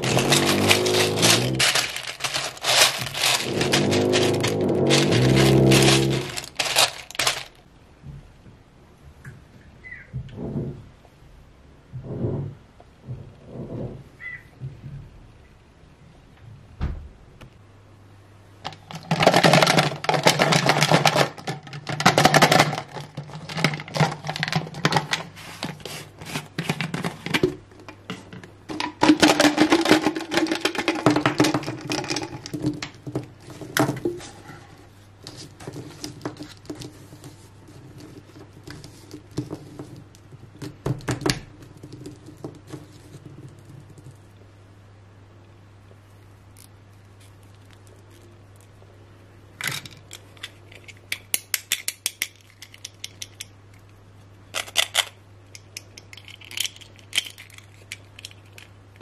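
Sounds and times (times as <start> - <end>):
plastic dolls and beads clattering: 0.0 - 7.6, 18.6 - 34.4, 35.2 - 44.2, 54.5 - 58.8
low steady hum: 0.0 - 59.0.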